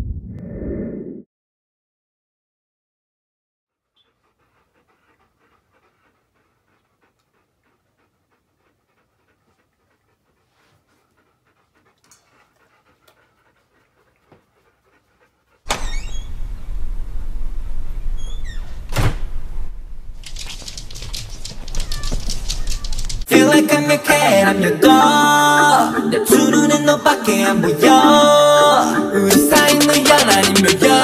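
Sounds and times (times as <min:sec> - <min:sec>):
dog panting: 0:03.8 - 0:16.3, 0:20.2 - 0:31.0.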